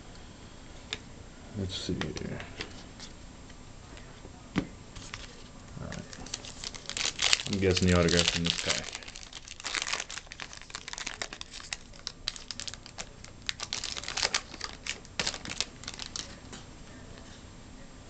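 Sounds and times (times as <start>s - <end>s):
foil wrapper crinkling and tearing: 5.0s - 16.5s.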